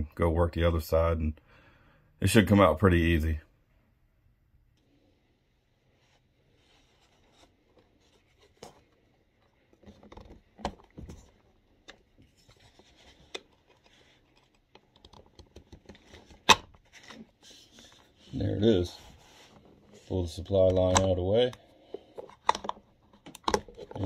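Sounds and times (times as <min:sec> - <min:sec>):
plastic clicks: 0:22.2 - 0:24.0.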